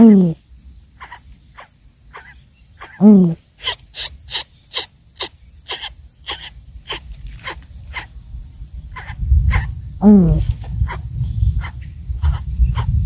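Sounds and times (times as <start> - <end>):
insect trilling: 0.0 - 13.0
nestling begging with raspy calls: 1.0 - 8.2, 8.9 - 13.0
low rumble: 8.2 - 13.0.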